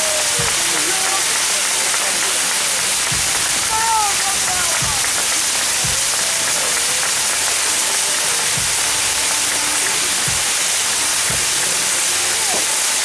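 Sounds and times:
fireworks hissing: 0.0s - 13.0s
dull low thumps: 2.9s - 6.6s.

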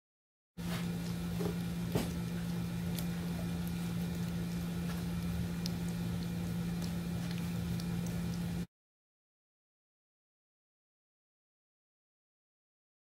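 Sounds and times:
steady low hum: 0.6s - 8.7s.

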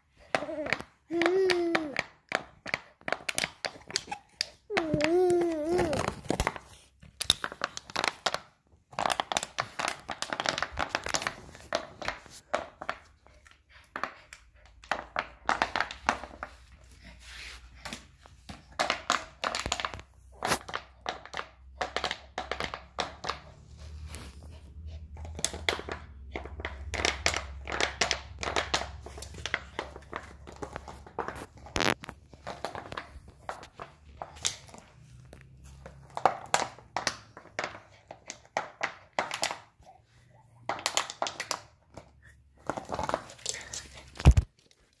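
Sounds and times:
dog chewing plastic bottle: 5.8s - 16.5s, 25.0s - 45.0s.

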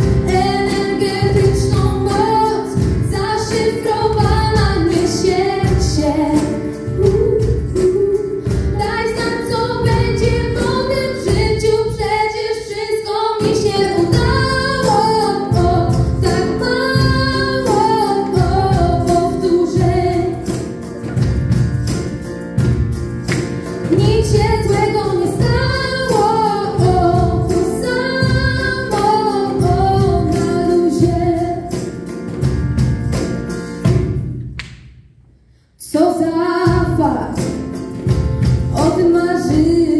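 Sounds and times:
band with steady drum beat: 0.0s - 12.0s, 13.4s - 34.6s, 36.6s - 39.9s
young women singing: 0.0s - 20.6s, 23.9s - 31.8s, 38.7s - 39.9s.

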